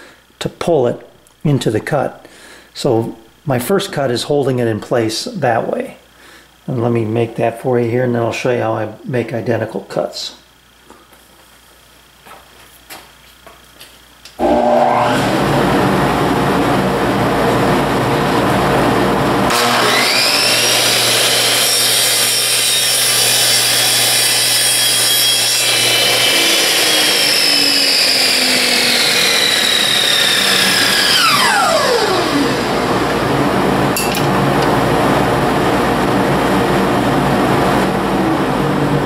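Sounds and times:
miter saw motor whining: 14.4s - 16.5s, 19.5s - 33.8s.

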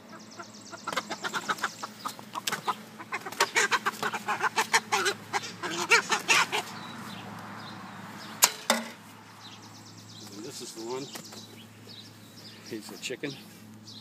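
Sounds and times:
chicken squawking: 0.0s - 6.8s
sharp knocks: 8.4s - 9.0s.

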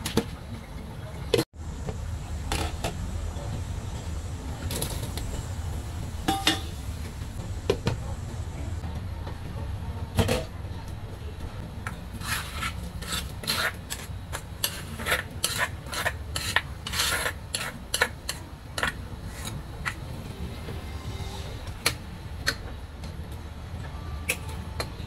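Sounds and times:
spatula scraping stone mortar: 12.1s - 20.0s.

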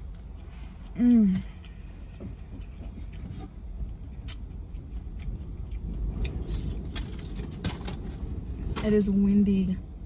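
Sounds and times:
wind buffeting a car: 2.0s - 10.0s.

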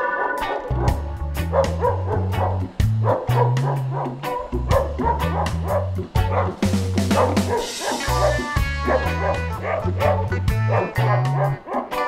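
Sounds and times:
dog barking: 0.0s - 12.0s
music with steady beat and bass: 0.0s - 12.0s.

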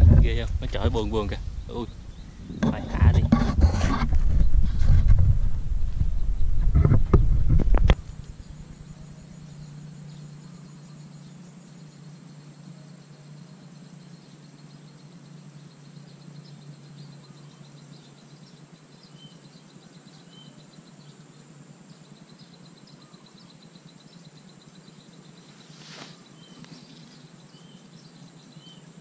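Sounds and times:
high insect trill: 0.0s - 4.7s, 5.6s - 29.0s
steady low hum: 0.0s - 29.0s
bird chirps: 8.1s - 29.0s.

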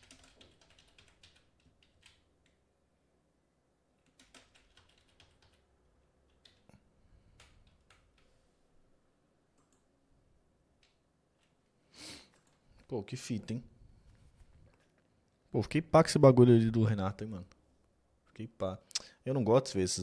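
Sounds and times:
faint keyboard typing: 0.0s - 2.6s, 4.0s - 8.4s, 9.5s - 9.9s, 10.8s - 11.6s, 12.2s - 13.0s.

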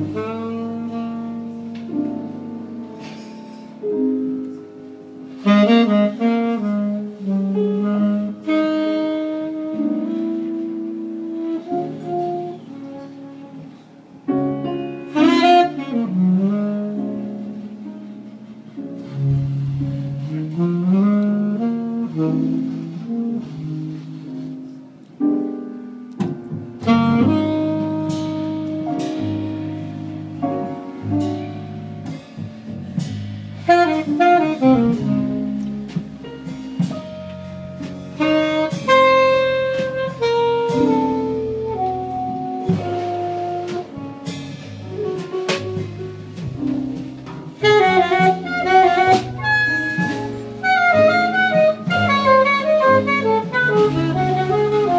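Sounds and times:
saxophone: 0.0s - 17.9s, 19.0s - 25.3s, 26.8s - 32.2s, 33.4s - 54.9s
jazz band playing: 0.0s - 54.9s
plucked double bass: 26.1s - 54.9s.

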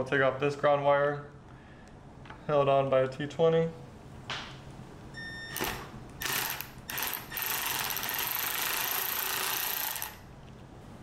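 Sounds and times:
cordless power screwdriver motor: 5.6s - 10.2s.

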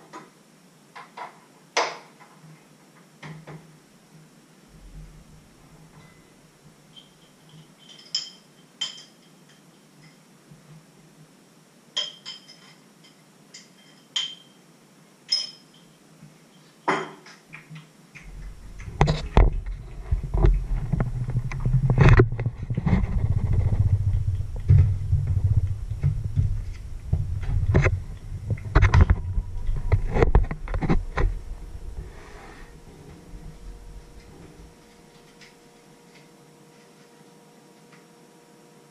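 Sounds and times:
glass clinking: 6.9s - 9.6s, 12.0s - 14.6s, 15.3s - 17.2s
handling noise on microphone: 18.2s - 35.6s.

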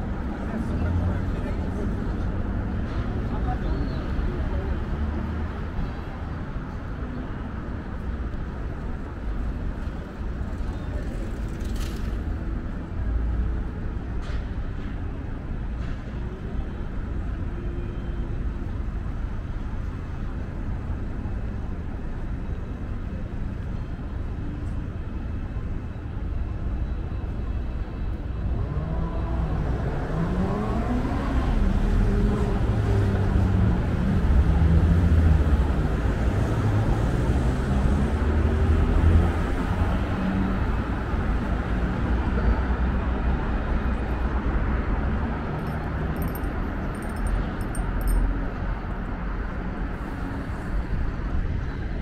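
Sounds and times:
passing cars rumbling: 28.2s - 52.0s.

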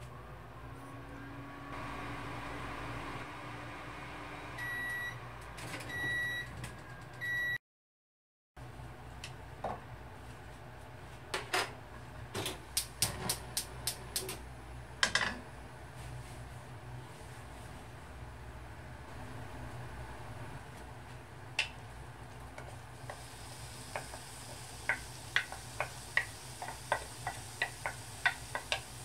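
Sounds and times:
microwave oven humming: 0.5s - 7.6s
microwave beeps: 4.5s - 6.5s, 7.2s - 7.6s.

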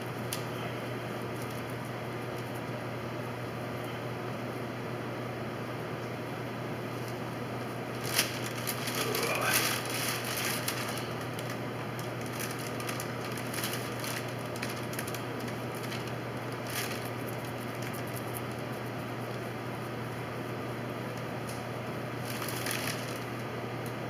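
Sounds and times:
steady low hum: 0.0s - 24.0s
paper sheeting crinkling: 7.9s - 19.4s, 22.1s - 23.5s.

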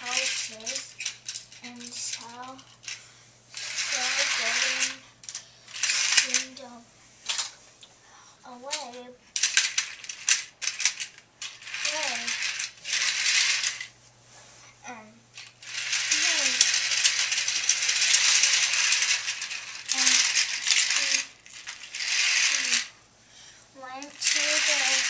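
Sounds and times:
plastic toy train clattering on track: 0.0s - 3.0s, 3.6s - 6.6s, 7.3s - 7.6s, 8.7s - 13.9s, 15.4s - 22.9s, 23.8s - 25.0s.

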